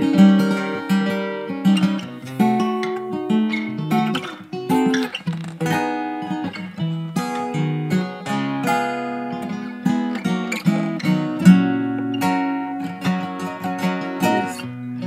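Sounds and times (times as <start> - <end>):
acoustic guitar strumming chords: 0.0 - 15.0
person singing: 14.1 - 14.8.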